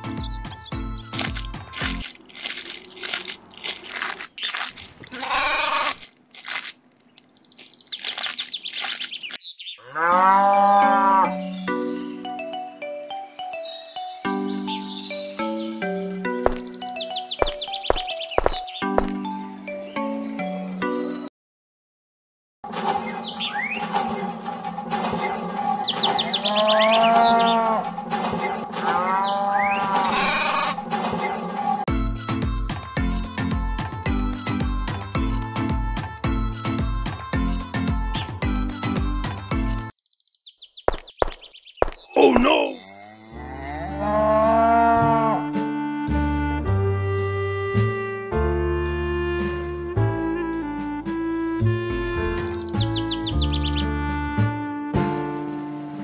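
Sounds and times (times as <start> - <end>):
grass chewing crunch: 1.0 - 9.5
cow mooing: 5.1 - 6.0, 9.8 - 11.4, 26.3 - 27.9, 28.8 - 30.8, 42.8 - 45.6
goat bleat: 5.1 - 6.0, 29.9 - 30.8
livestock calling: 5.1 - 6.0, 26.1 - 27.9, 28.8 - 30.8, 42.1 - 45.6
quick high bird chirps: 16.5 - 19.0, 40.0 - 42.2.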